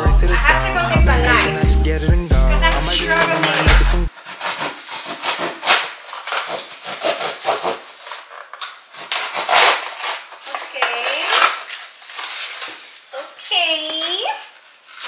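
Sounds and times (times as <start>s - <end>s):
knife sawing through cardboard: 4.1s - 10.5s.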